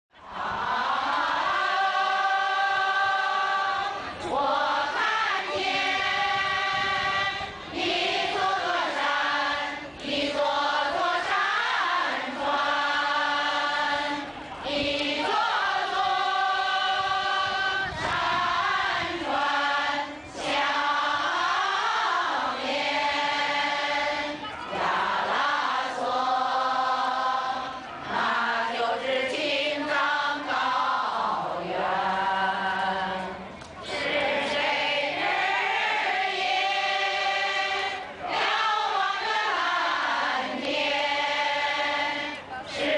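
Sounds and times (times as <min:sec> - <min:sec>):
group singing: 0:00.2 - 0:42.9.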